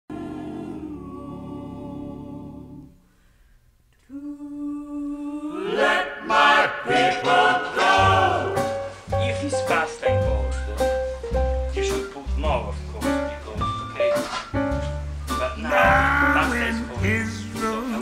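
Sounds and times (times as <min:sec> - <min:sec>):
deep bass note: 0:08.1 - 0:14.0, 0:14.6 - 0:18.0
person singing: 0:15.4 - 0:18.0.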